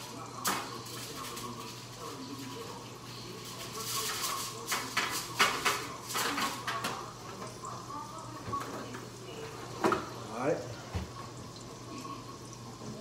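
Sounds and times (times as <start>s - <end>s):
aluminium foil crinkling: 0.0s - 7.1s.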